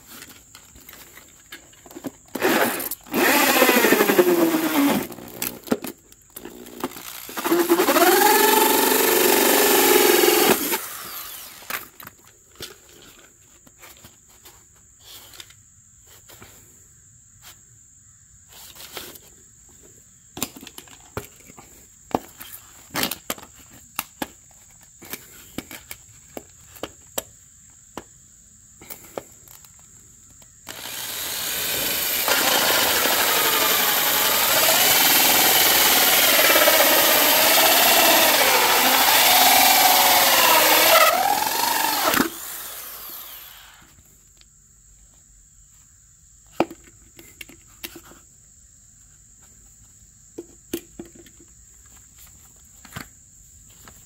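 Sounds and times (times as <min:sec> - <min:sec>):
power tool running: 0:02.4 - 0:05.7, 0:06.4 - 0:11.8, 0:30.7 - 0:43.9.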